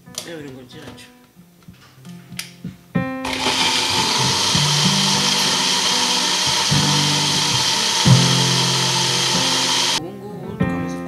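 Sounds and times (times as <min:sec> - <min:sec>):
blender running: 0:03.3 - 0:10.0.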